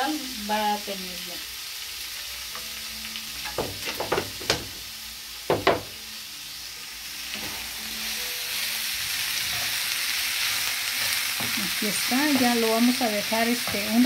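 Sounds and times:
food sizzling in a frying pan: 0.0s - 14.0s
utensil knocking and scraping pan: 3.4s - 4.8s.

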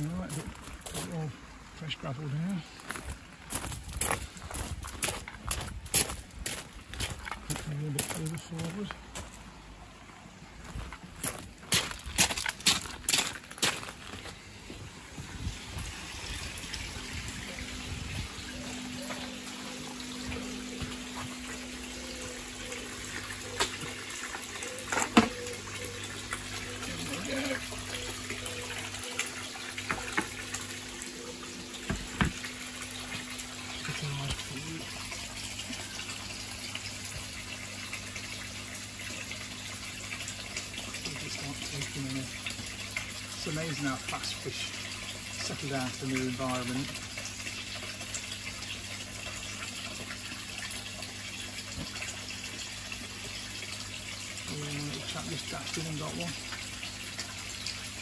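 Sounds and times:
water splashing into pond: 2.9s - 58.0s.

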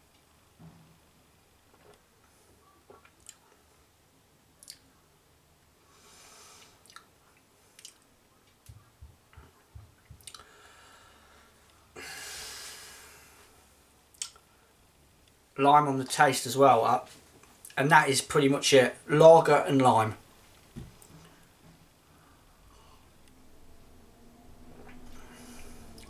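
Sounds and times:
lip and tongue clicks: 4.6s - 4.8s, 6.8s - 7.1s, 7.8s - 8.0s, 10.2s - 10.5s, 14.1s - 14.4s
person breathing softly: 5.8s - 6.8s, 10.4s - 13.8s, 21.2s - 23.3s, 25.1s - 26.0s.

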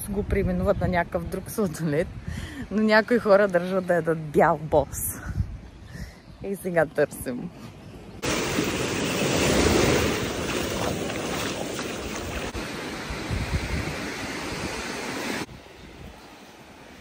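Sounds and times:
wind buffeting microphone: 4.7s - 6.6s, 8.2s - 16.2s
sea surf washing on beach: 8.2s - 17.0s.

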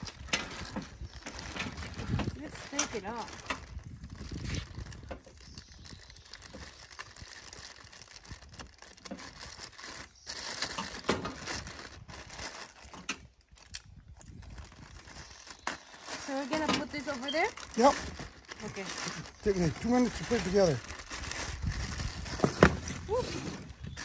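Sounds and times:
plastic wrapping crinkling: 0.0s - 24.0s.

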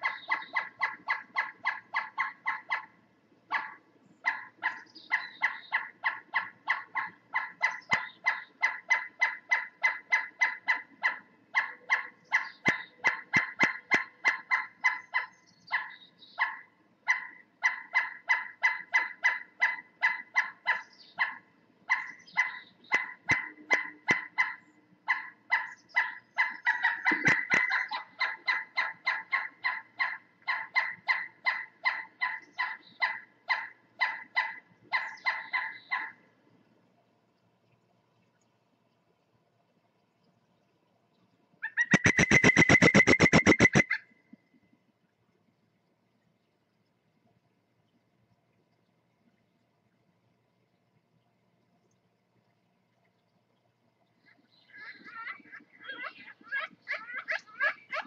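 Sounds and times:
woodpecker calling: 0.0s - 2.9s, 3.5s - 36.2s, 41.6s - 44.1s.

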